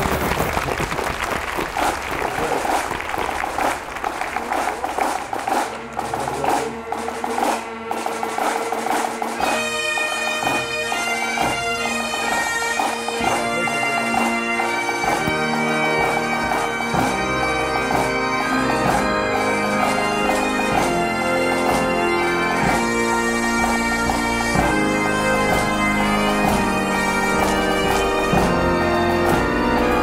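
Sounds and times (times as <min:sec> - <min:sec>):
people clapping: 0:00.0 - 0:09.6, 0:11.4 - 0:21.0
drums keeping beat: 0:01.9 - 0:30.0
bagpipes playing: 0:04.5 - 0:30.0.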